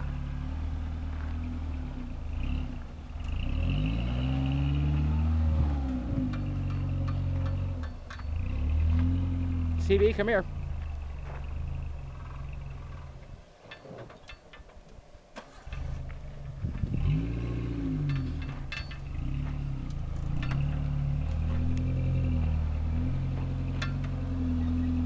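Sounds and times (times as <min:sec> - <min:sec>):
car engine revving: 0:00.0 - 0:13.4, 0:15.4 - 0:25.0
sharp clicks and knocks: 0:06.1 - 0:09.1, 0:13.6 - 0:16.9, 0:17.9 - 0:22.0, 0:23.3 - 0:24.2.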